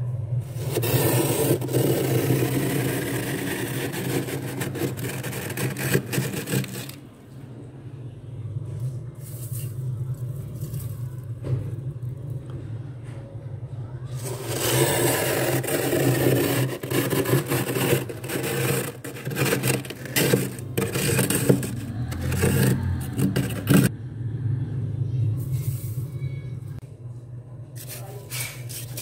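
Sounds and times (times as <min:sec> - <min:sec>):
metal tumbler scraping frost: 0:00.4 - 0:07.1, 0:14.2 - 0:23.9.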